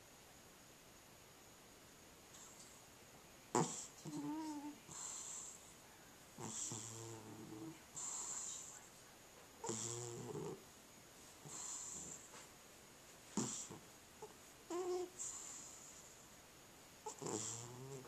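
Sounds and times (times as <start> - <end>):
cat snoring: 3.5 - 5.6, 6.4 - 8.7, 9.6 - 10.6, 11.4 - 12.3, 13.4 - 16.1, 17.0 - 18.0.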